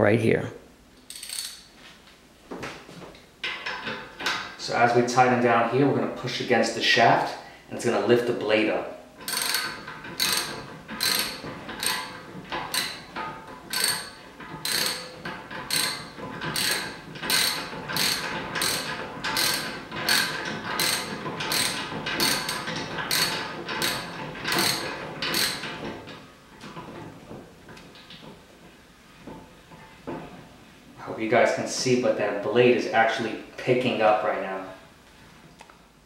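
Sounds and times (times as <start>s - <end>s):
ratchet wrench clicking: 1.0s - 1.7s, 9.2s - 13.0s, 13.7s - 25.6s.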